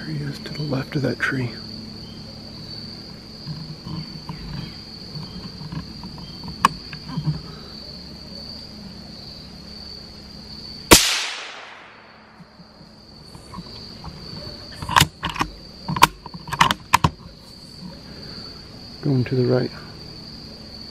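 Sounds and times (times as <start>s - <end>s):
insects chirring: 0.0s - 20.9s
rifle shot with echo: 10.9s - 12.5s.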